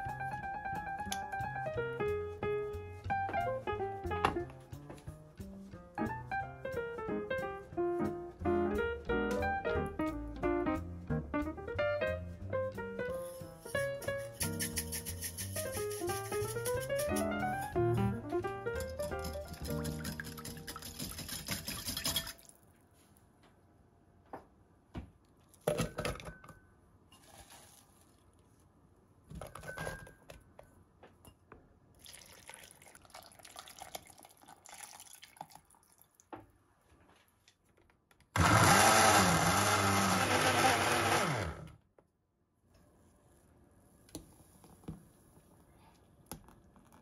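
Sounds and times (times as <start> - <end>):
countertop blender running: 38.4 - 41.8.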